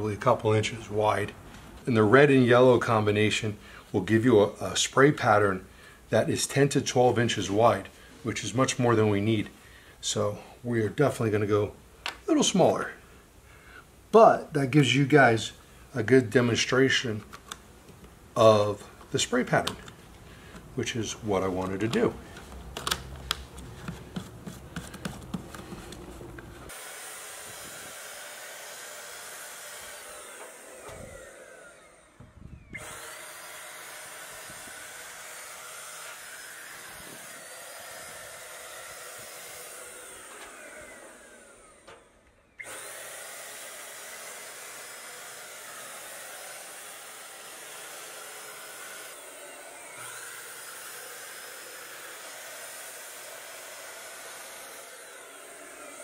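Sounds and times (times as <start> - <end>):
paint sprayer hissing: 18.7 - 30.8
plastic clicks: 19.0 - 20.7, 21.6 - 24.0.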